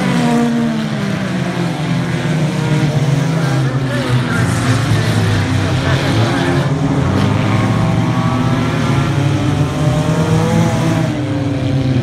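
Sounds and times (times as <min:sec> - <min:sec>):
race car engines passing by: 0:00.0 - 0:12.0.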